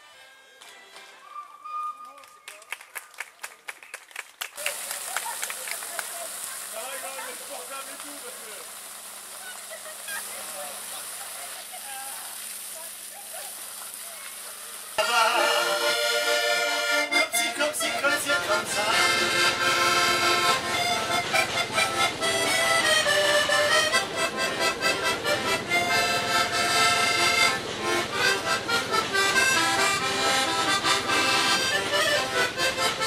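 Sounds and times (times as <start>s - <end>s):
accordion playing a tune: 0.0s - 2.2s, 15.0s - 33.0s.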